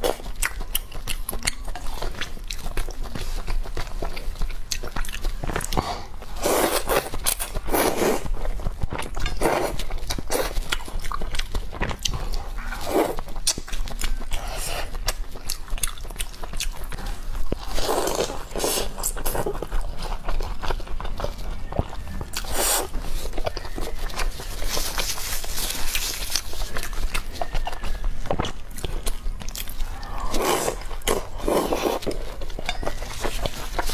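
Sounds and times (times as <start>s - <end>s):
wet chewing and lip smacking: 0.0s - 33.9s
noodles slurping: 9.0s - 33.9s.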